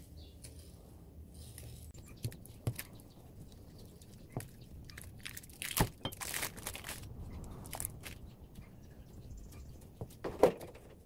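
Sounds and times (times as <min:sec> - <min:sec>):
sticky peeling crackle: 0:02.0 - 0:08.3.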